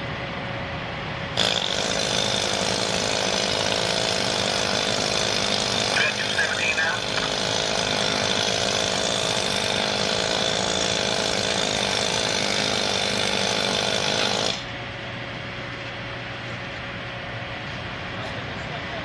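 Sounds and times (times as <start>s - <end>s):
engine-driven track tool running: 1.3s - 15.1s
steady hum: 4.4s - 13.2s.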